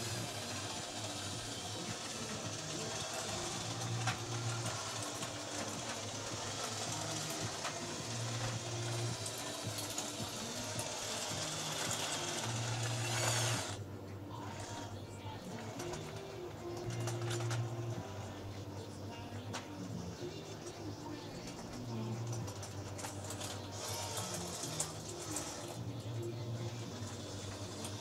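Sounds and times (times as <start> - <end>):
tracks rattling on concrete: 0.0 - 13.8
electric motors whirring: 0.0 - 28.0.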